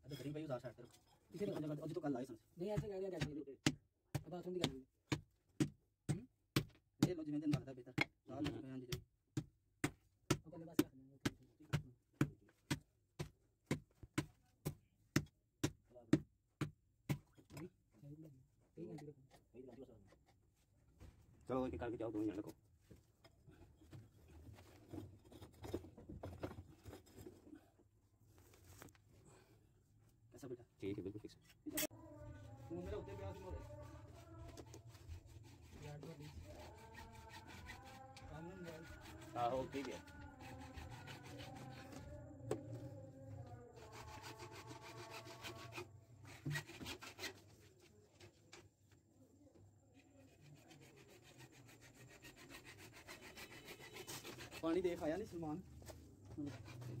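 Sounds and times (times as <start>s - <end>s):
hand tool scraping: 31.4s - 42.8s, 43.4s - 48.6s, 50.0s - 55.3s, 56.3s - 57.0s.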